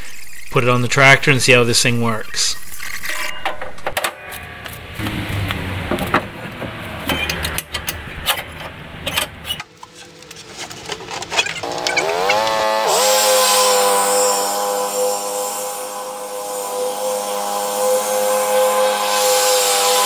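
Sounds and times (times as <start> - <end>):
lawn tractor engine revving: 11.4 - 20.0.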